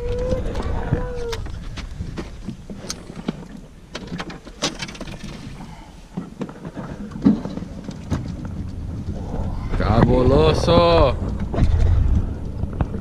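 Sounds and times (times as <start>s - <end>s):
clicks and knocks in boat: 0.0s - 8.8s
low rumble: 5.1s - 13.0s.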